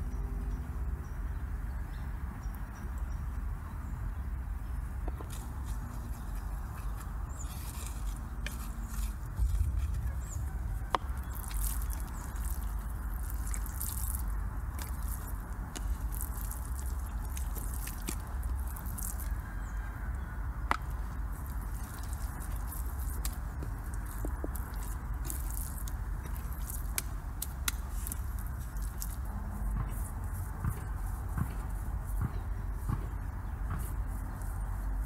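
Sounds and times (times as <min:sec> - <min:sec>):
low rumble: 0:07.5 - 0:14.8
fire popping: 0:07.8 - 0:19.4, 0:20.7 - 0:29.3
wood fire crackling: 0:20.7 - 0:29.2.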